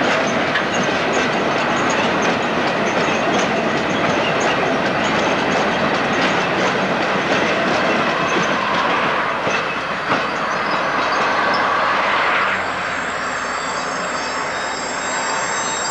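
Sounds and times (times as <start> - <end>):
train wheels clattering over rail joints: 0.0 - 12.1.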